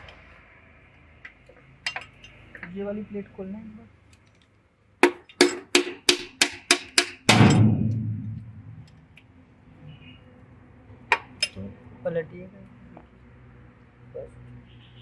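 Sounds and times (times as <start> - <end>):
sharp knocks on metal cover plate: 5.0 - 8.8
heavy thud with low rumble: 7.3 - 9.1.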